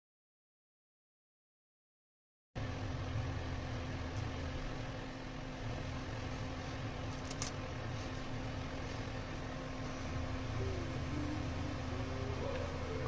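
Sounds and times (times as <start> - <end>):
low mechanical hum: 2.6 - 13.0.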